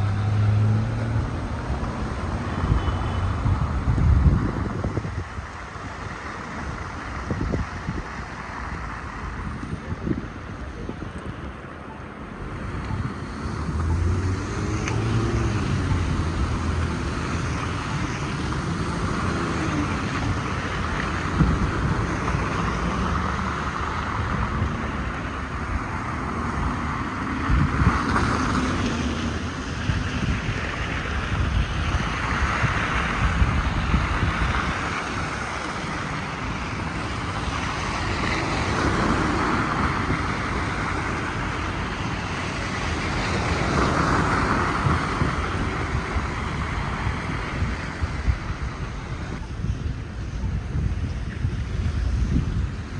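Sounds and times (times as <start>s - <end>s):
car engines passing: 0.0s - 52.9s
tyres hissing through slush: 25.7s - 49.2s.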